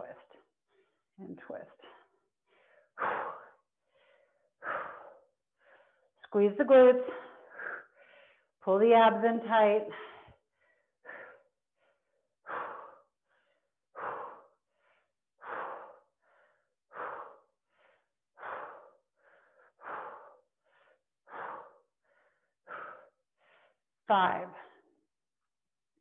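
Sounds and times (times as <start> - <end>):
woman breathing hard: 1.8 - 6.3, 7.1 - 8.6, 9.9 - 24.0.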